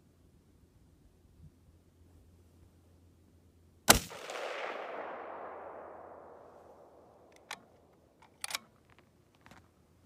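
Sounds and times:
rifle shot with rolling echo: 3.9 - 8.2
rifle bolt click: 7.2 - 8.7.

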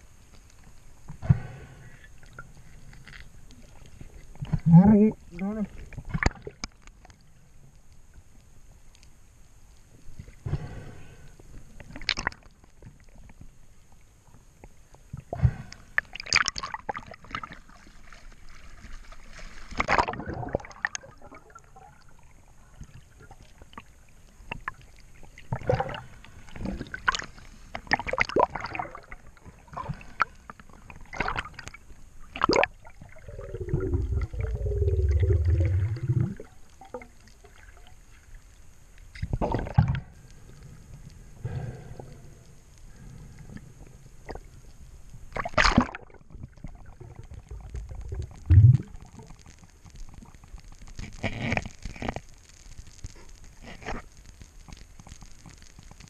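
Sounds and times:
low underwater gurgling rumble: 9.7 - 52.4.

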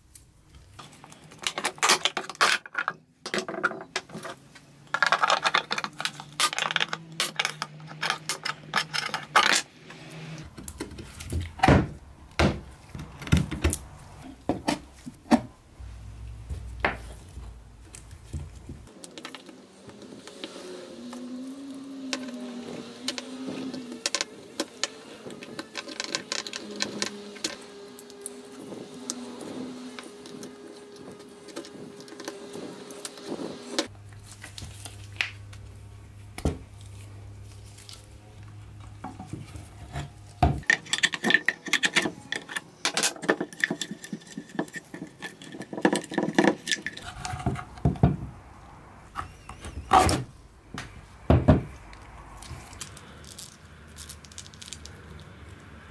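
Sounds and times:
blade scraping wood: 19.3 - 35.1, 38.8 - 48.0.

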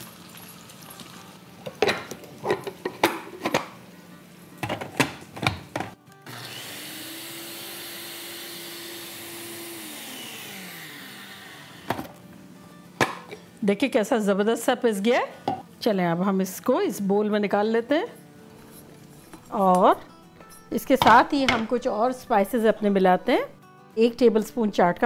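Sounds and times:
blender motor whirring: 6.2 - 12.1
blender cup clicks and knocks: 13.0 - 13.4.

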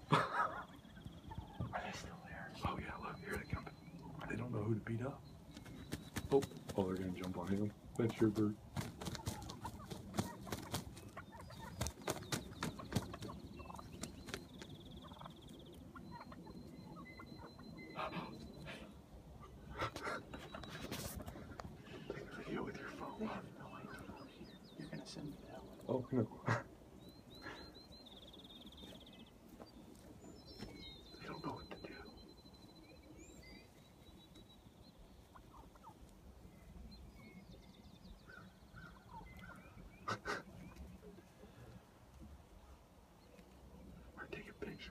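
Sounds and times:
turkeys gobbling: 0.0 - 24.6, 25.3 - 28.0, 35.0 - 36.6, 38.2 - 43.7
small birds chirping: 0.0 - 44.9.

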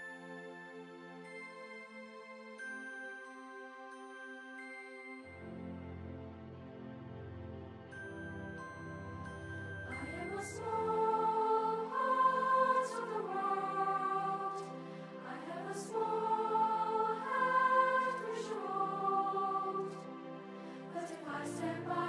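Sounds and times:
choir singing slow chords: 5.2 - 22.0.

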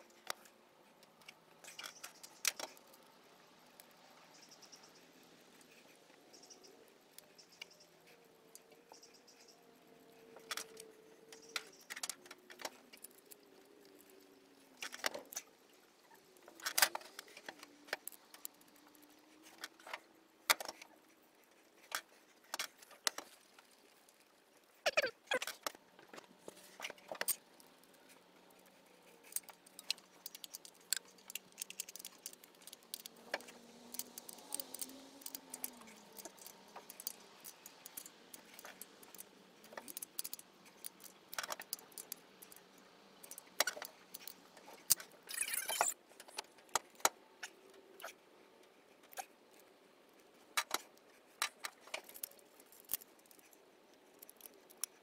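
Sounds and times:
metallic clicks and clinks of tools: 29.2 - 42.6.

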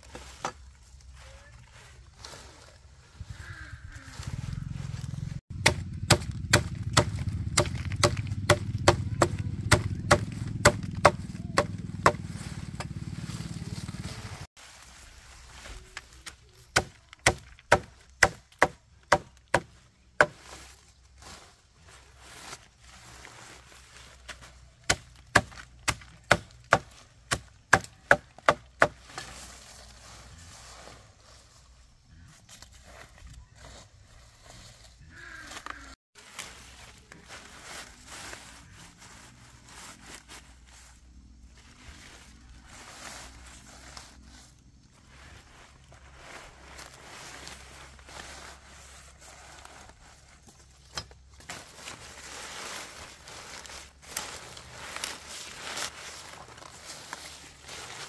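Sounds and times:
low steady rumble: 3.2 - 14.5
blade chopping: 5.5 - 13.0.

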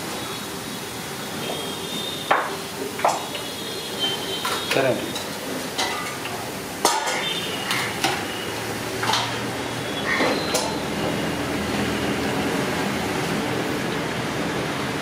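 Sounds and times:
food sizzling in hot oil: 0.0 - 15.0
metal skimmer clanking on pan: 5.2 - 6.2, 6.8 - 8.2.

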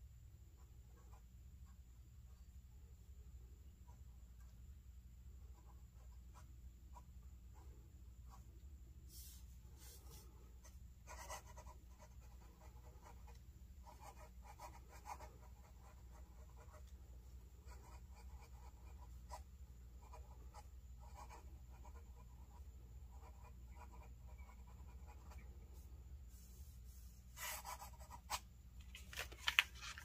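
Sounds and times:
pen nib scratching paper: 11.1 - 16.9.

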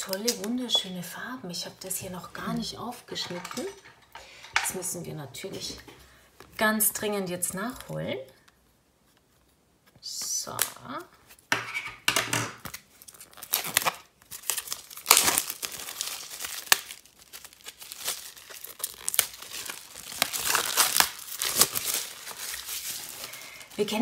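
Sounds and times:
plastic wrap crinkling: 12.6 - 24.0.

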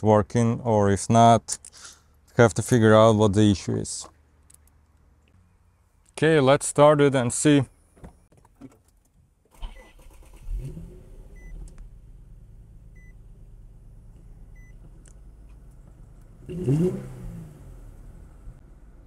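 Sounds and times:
car engine starting and idling: 8.8 - 19.0
engine revving: 9.6 - 14.0, 16.2 - 18.6.

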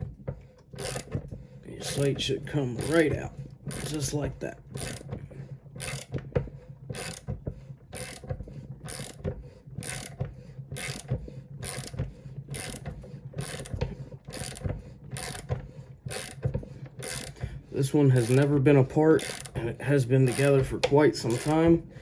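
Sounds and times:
ratchet wrench clicking: 0.8 - 1.1, 3.7 - 4.1, 5.8 - 6.1, 7.0 - 7.2, 8.0 - 8.2, 8.9 - 9.2, 9.8 - 10.2, 10.8 - 12.8, 13.4 - 13.7, 15.2 - 15.5, 16.1 - 16.4, 17.0 - 17.4, 19.2 - 19.5, 20.3 - 20.7, 21.3 - 21.6.

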